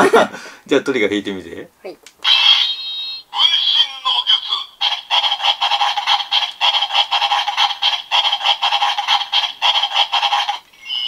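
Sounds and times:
toy electronic rapid pulsing: 4.1 - 11.0.

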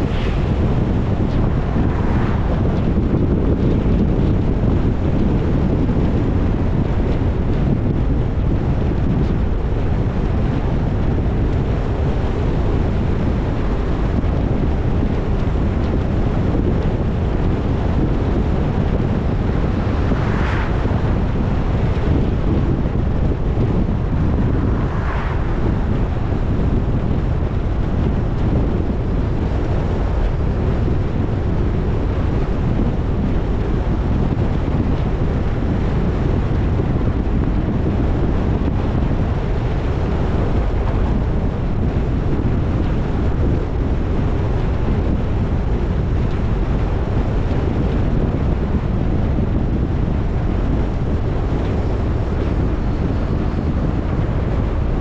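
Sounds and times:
brief whooshes: 0.0 - 3.2, 24.2 - 26.3
wind and road noise from car: 0.0 - 55.0.

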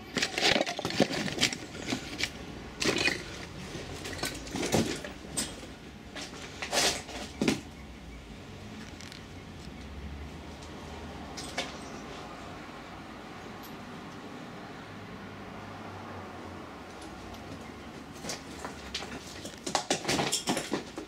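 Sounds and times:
footsteps crunching over rubble: 0.0 - 7.7, 17.4 - 21.0.

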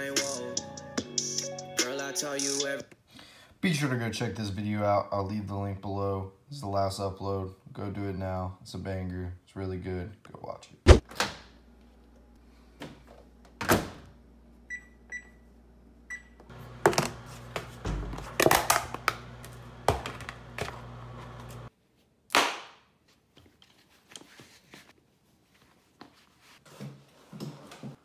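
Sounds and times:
microwave oven humming: 13.3 - 21.7
microwave keypad beeps: 14.7 - 15.4, 16.1 - 16.4.

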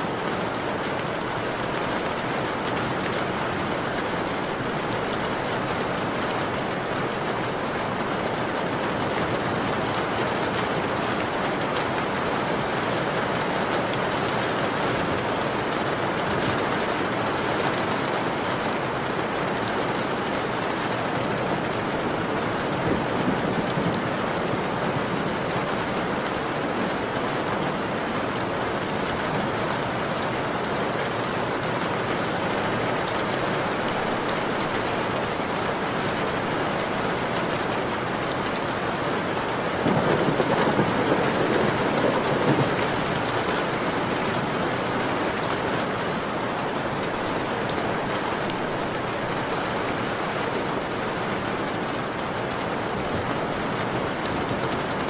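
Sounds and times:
steady rain hiss: 0.0 - 55.0.

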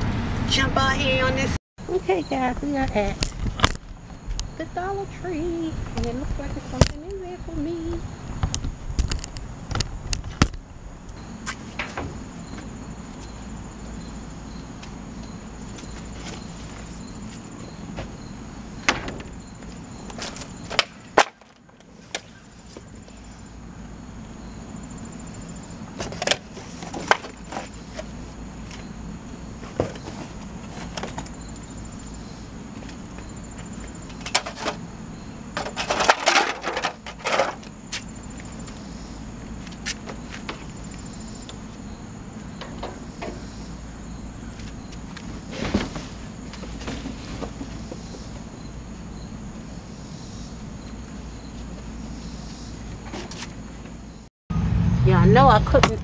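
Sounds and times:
cardboard boxes clattering and rustling: 26.0 - 28.2, 29.6 - 31.5, 45.4 - 48.3.

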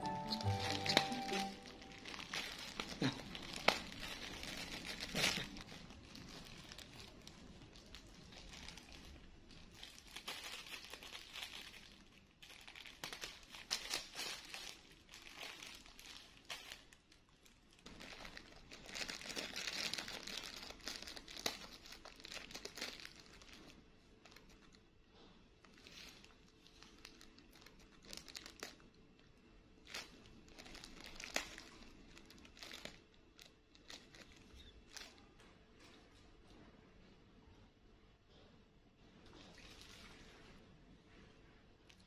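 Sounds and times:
plastic bag rustling and crinkling: 0.0 - 36.6, 39.2 - 42.0.

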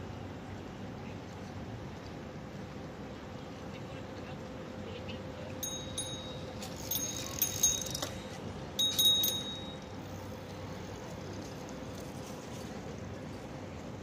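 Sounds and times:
faint steady hum: 0.0 - 14.0
small metal objects jingling: 5.6 - 9.8.

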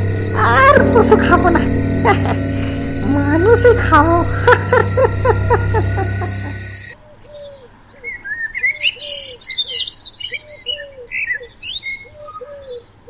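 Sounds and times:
crickets chirping: 0.0 - 7.0
music bed: 0.0 - 7.0.

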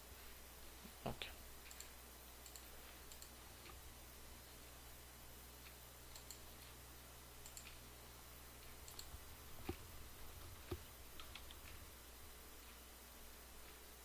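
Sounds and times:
low steady hum: 0.0 - 14.0
faint computer mouse clicks: 1.6 - 3.8, 5.6 - 6.8, 7.4 - 7.8, 8.7 - 9.8, 10.6 - 11.8.

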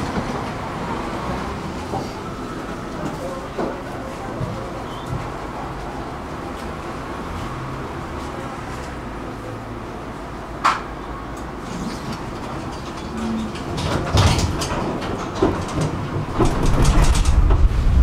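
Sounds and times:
tram running on rails: 0.0 - 18.0
wheel clicks over rail joints: 11.4 - 17.8.

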